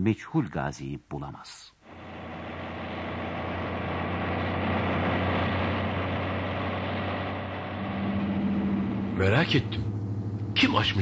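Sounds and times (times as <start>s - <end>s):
steady hum: 1.8s - 11.0s
truck engine droning: 1.9s - 11.0s.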